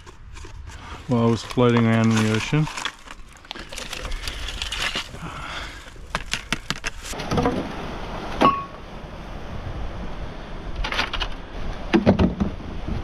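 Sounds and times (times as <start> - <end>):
dry beach debris crunching: 0.0 - 7.2.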